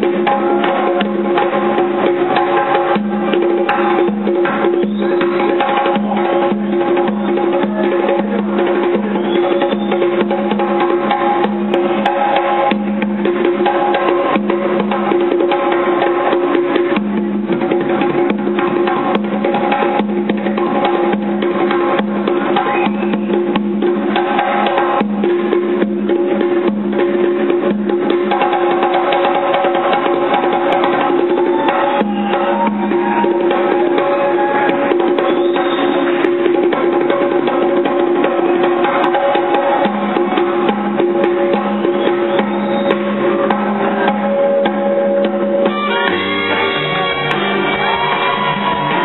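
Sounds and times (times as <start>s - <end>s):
conga drumming: 0.0s - 49.0s
hand percussion: 0.0s - 49.0s
jazz band playing a groove: 39.6s - 49.0s.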